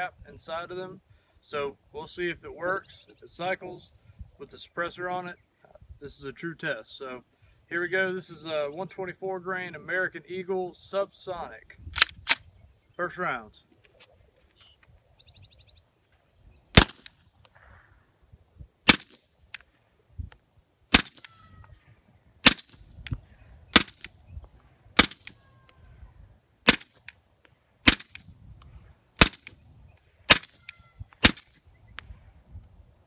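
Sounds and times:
suppressed pistol shots: 0:16.8 - 0:17.1, 0:18.9 - 0:19.2, 0:20.9 - 0:21.3, 0:22.4 - 0:22.8, 0:23.7 - 0:24.1, 0:25.0 - 0:25.4, 0:26.6 - 0:27.1, 0:27.8 - 0:28.2, 0:29.2 - 0:29.6, 0:30.3 - 0:30.6, 0:31.2 - 0:31.6.

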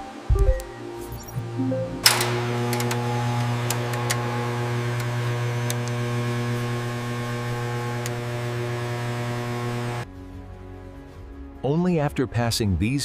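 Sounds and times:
electrical machine hum: 0:02.0 - 0:10.0.

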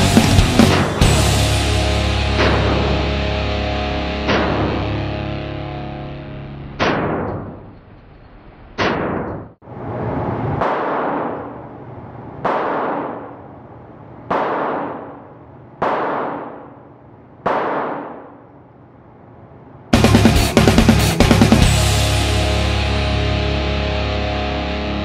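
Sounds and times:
loud rock music: 0:00.0 - 0:06.8, 0:20.0 - 0:25.0
gunshot cracks with echo: 0:02.4 - 0:03.0, 0:04.2 - 0:04.9, 0:06.8 - 0:07.6, 0:08.8 - 0:09.5, 0:10.6 - 0:11.6, 0:12.4 - 0:13.4, 0:14.3 - 0:15.2, 0:15.8 - 0:16.8, 0:17.4 - 0:18.4.

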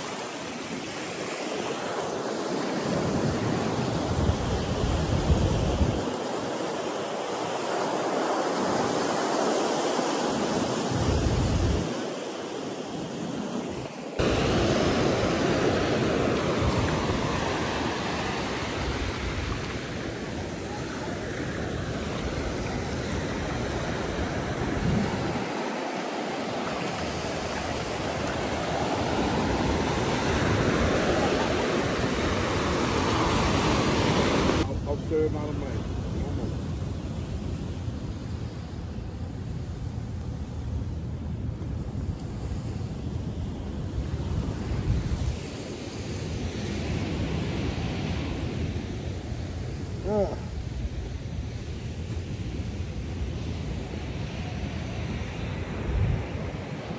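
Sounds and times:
ocean surf breaking: 0:00.0 - 0:36.7
small waves washing on sand: 0:00.0 - 0:56.9
wind buffeting microphone: 0:14.2 - 0:34.7.

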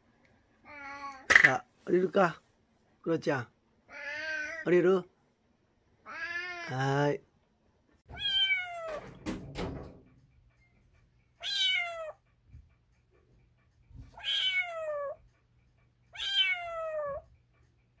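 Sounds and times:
kitten mewing: 0:03.9 - 0:04.7, 0:06.0 - 0:06.8, 0:14.2 - 0:15.2, 0:16.2 - 0:17.3
knocks: 0:08.9 - 0:10.4.

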